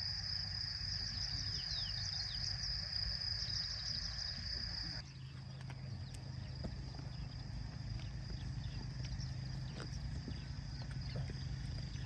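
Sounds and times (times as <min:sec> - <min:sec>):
high-pitched insect trill: 0:00.0 - 0:05.1
bird chirps: 0:01.2 - 0:07.4.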